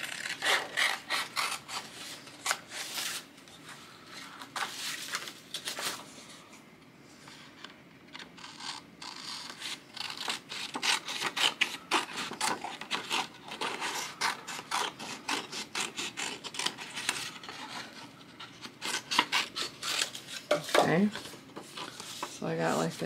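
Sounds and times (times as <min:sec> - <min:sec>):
paper rustling: 0:04.2 - 0:06.4
scissors snipping paper: 0:08.4 - 0:17.9.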